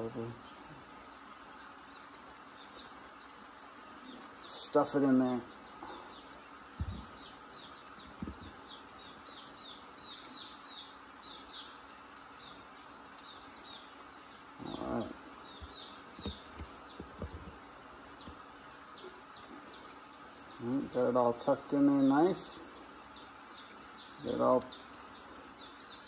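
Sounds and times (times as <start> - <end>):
baby chicks peeping: 0.0 - 26.0.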